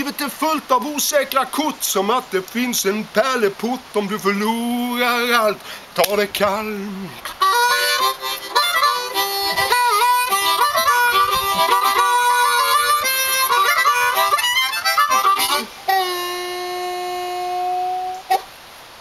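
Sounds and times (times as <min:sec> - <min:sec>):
blues harmonica: 0:06.7 - 0:18.5.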